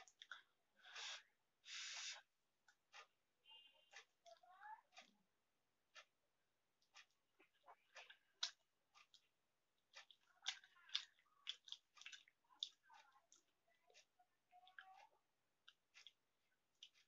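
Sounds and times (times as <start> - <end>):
noodles slurped and chewed: 6.9 - 15.0, 15.6 - 17.0.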